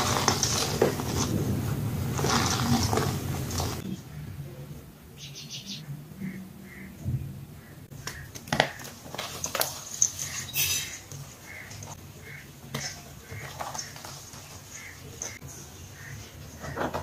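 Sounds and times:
chalk crunching and crackling: 0.0s - 3.8s, 8.0s - 16.8s.

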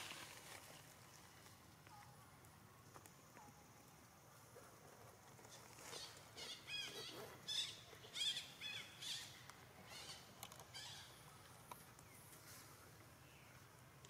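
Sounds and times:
dry leaves rustling and crackling: 0.0s - 1.7s.

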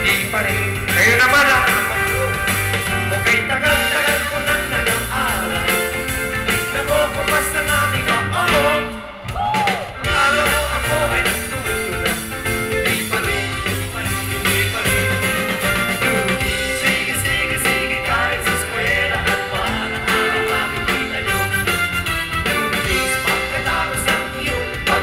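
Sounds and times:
men singing into microphones: 0.0s - 2.2s, 3.0s - 9.2s, 10.0s - 21.8s, 22.4s - 25.0s
live band music: 0.0s - 25.0s.

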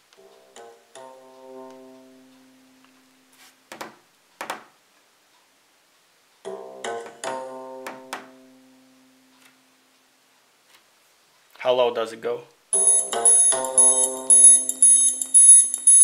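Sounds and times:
instrumental music on small speaker: 0.2s - 3.5s, 12.8s - 16.0s.

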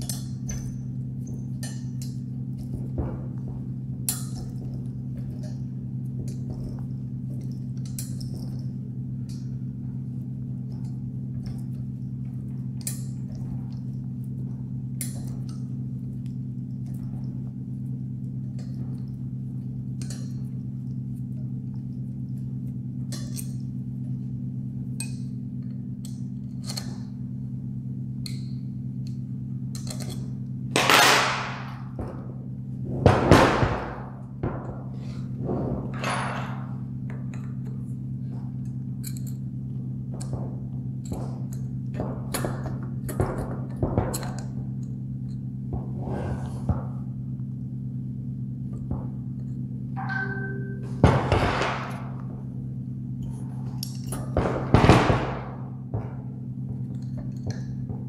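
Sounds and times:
steady low hum: 0.0s - 58.0s
heavy metal fitting scraping table: 35.0s - 36.8s, 45.9s - 47.0s.

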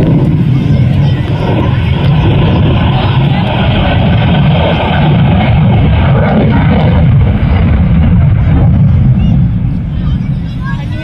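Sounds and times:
jet engine rumble in flight: 0.0s - 11.0s.

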